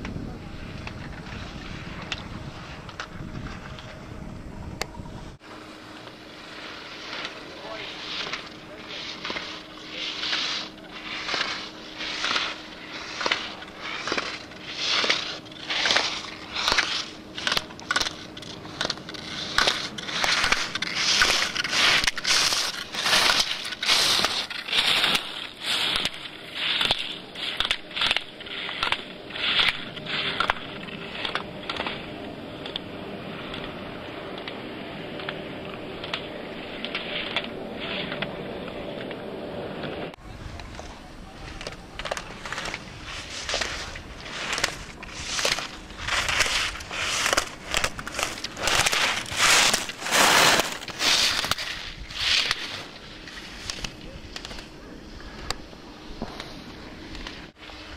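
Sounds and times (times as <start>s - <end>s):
skis carving on hard snow: 0.0s - 4.1s, 5.6s - 57.9s
sharp ski clicks: 6.5s - 33.8s, 39.8s - 57.9s.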